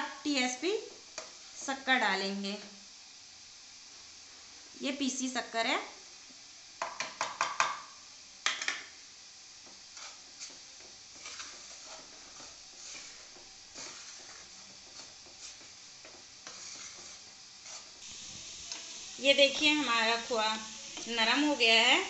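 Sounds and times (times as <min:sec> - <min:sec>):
wooden spatula scraping pan: 0:09.8 - 0:18.9.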